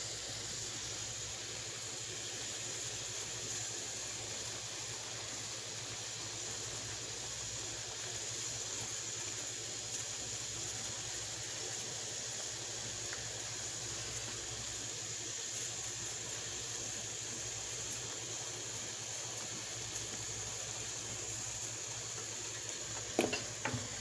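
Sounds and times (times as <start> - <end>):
shrimp sizzling in butter: 0.0 - 24.0.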